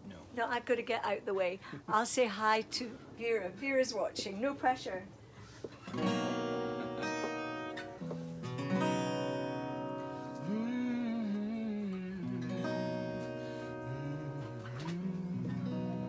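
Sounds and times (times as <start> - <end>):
strummed acoustic guitar chords: 5.8 - 16.0.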